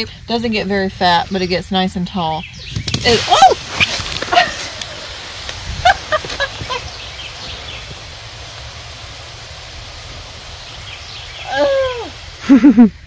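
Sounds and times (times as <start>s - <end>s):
mist nozzles spraying water: 2.8s - 13.0s.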